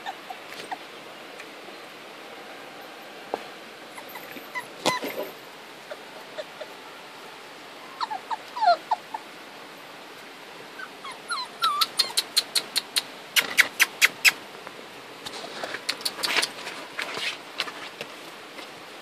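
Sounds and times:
puppies whimpering and squeaking: 0.0s - 0.9s, 3.9s - 6.8s, 7.9s - 9.3s, 10.8s - 14.4s.

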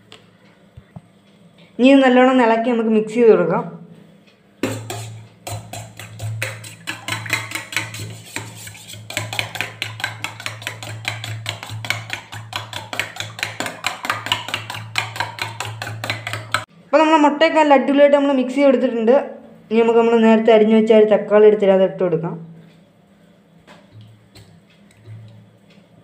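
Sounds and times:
spoon clinking in metal bowl: 4.6s - 16.6s.

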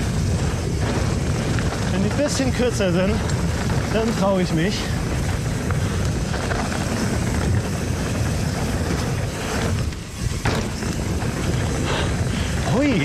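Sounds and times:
bike tyre and chain rattle: 0.0s - 13.0s
wind rush on microphone: 0.0s - 13.0s
bike landing knock: 9.8s - 12.0s.

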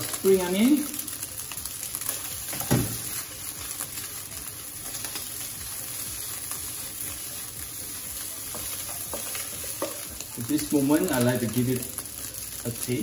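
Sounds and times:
rice sizzling in a wok: 0.0s - 13.0s.

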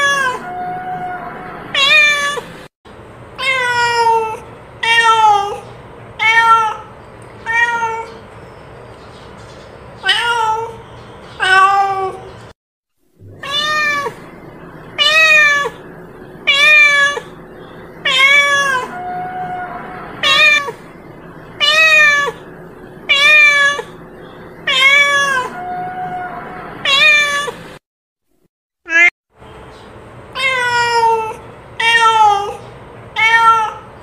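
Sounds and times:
cat meowing: 0.0s - 2.5s, 3.4s - 8.2s, 10.0s - 10.8s, 11.4s - 12.3s, 13.3s - 14.3s, 14.9s - 15.8s, 16.4s - 17.3s, 18.0s - 20.8s, 21.6s - 22.5s, 23.1s - 24.0s, 24.6s - 27.6s, 28.9s - 29.1s, 30.4s - 32.6s, 33.2s - 33.9s.

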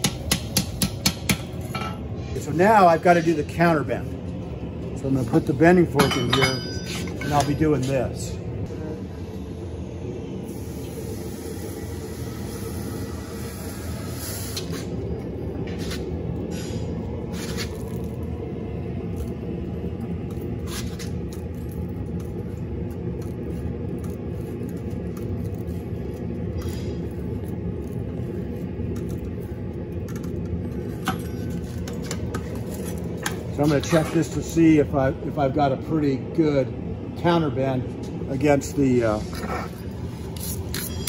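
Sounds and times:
gas forge roaring: 0.0s - 41.0s.

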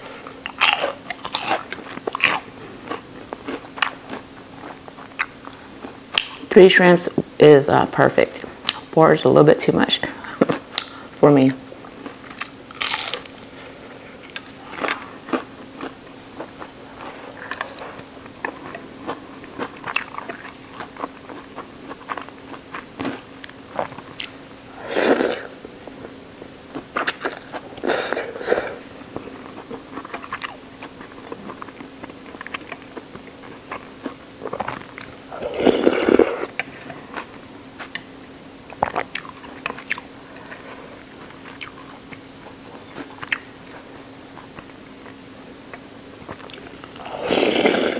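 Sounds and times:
crunching bites and chewing: 0.1s - 6.4s, 12.0s - 25.3s, 26.7s - 28.5s, 29.1s - 38.1s
slurping noodles: 24.8s - 25.5s, 27.2s - 28.8s, 35.3s - 36.6s, 47.0s - 47.9s.

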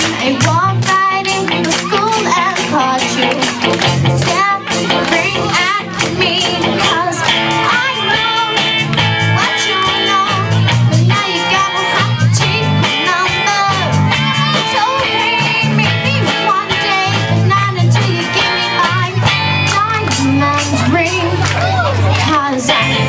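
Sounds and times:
drum kit beat: 0.0s - 23.0s
electric guitars: 0.0s - 23.0s
person singing: 0.0s - 23.0s.

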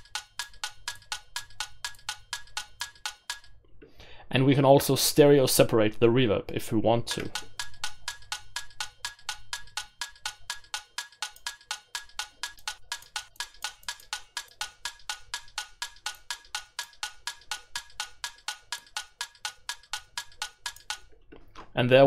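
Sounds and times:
clock ticking percussion loop: 0.0s - 3.6s, 7.1s - 21.2s.

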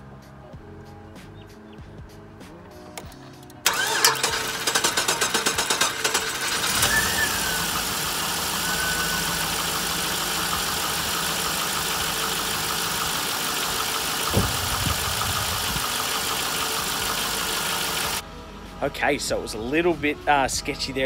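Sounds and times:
car engine starting and idling: 2.8s - 18.2s.

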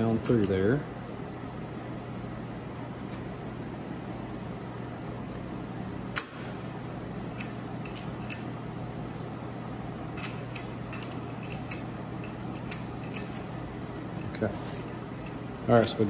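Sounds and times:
steady low hum: 0.0s - 16.0s
sharp metal clicks and clinks: 10.2s - 13.6s.

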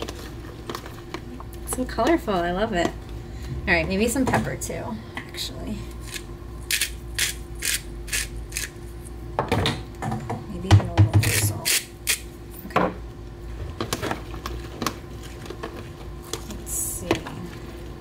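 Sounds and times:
pepper grinder rasping: 6.0s - 8.8s, 11.2s - 12.2s.

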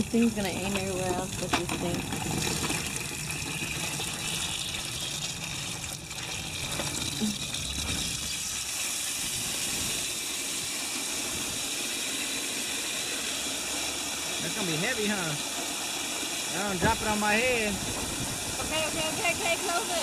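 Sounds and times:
water gushing into a bucket: 0.0s - 20.0s.

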